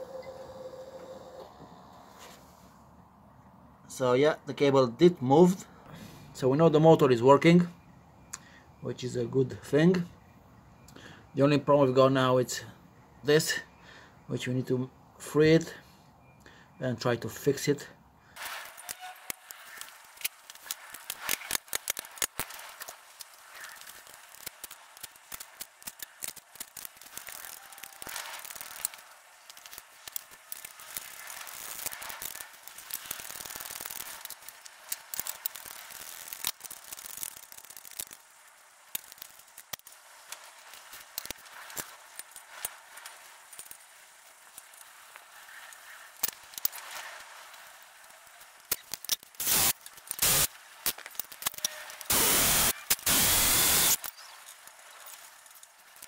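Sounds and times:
hand tools clicking and scraping: 18.4s - 38.3s, 38.9s - 56.0s
loud bursts of noise: 49.4s - 50.5s, 52.1s - 54.0s.

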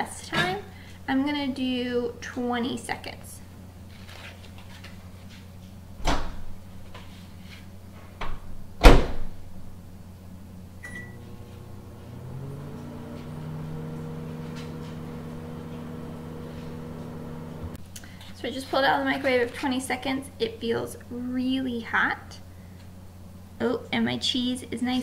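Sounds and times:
microwave oven humming: 7.8s - 18.2s
keypad beep: 10.8s - 11.2s.

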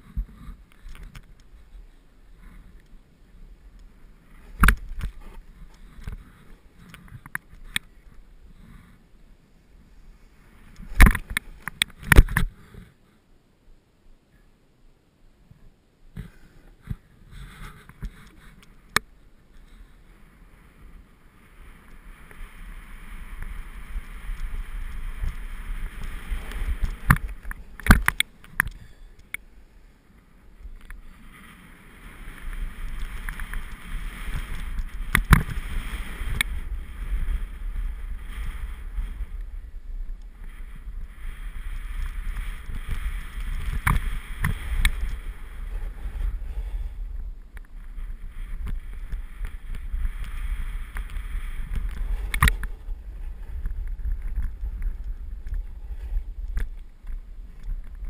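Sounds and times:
wind rumble on microphone: 0.0s - 13.0s, 15.4s - 58.0s
skis scraping across snow: 19.4s - 58.0s.

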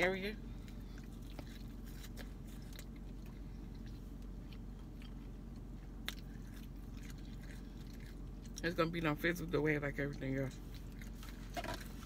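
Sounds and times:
low hum inside a car: 0.0s - 12.0s
person chewing food: 0.4s - 8.7s, 10.6s - 12.0s.

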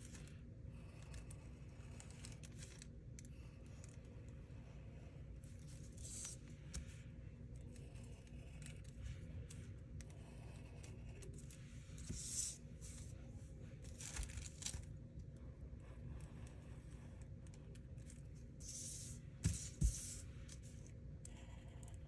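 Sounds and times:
low room hum: 0.0s - 22.0s
marker scratching on paper: 5.8s - 6.9s, 10.1s - 13.2s, 18.6s - 20.7s
paper sliding on countertop: 12.0s - 13.1s, 18.6s - 20.4s.

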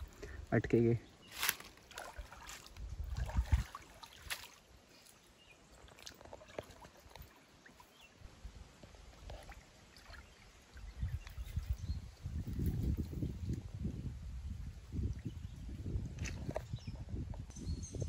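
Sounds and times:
river water splashing: 1.2s - 11.8s.

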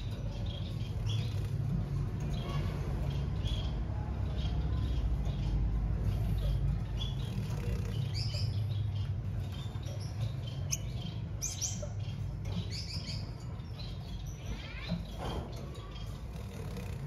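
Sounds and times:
bird high chirps: 0.0s - 16.9s.

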